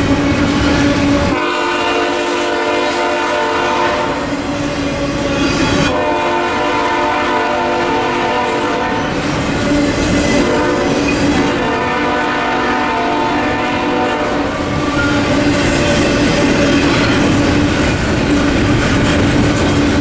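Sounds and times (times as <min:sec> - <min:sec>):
locomotive air horn blasts: 0:01.2 - 0:04.5, 0:05.8 - 0:09.2, 0:10.4 - 0:15.3.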